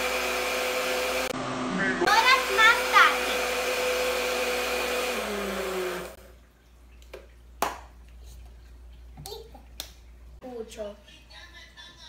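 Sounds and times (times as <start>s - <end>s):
blender motor running: 0.0s - 6.2s.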